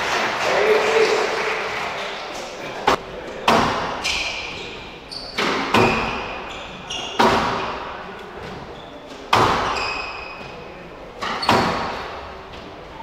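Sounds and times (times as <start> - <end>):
squash ball hits with echo: 2.9 - 4.5, 5.4 - 8.7, 9.3 - 10.6, 11.2 - 12.4
shoes squeaking on court floor: 3.9 - 12.8.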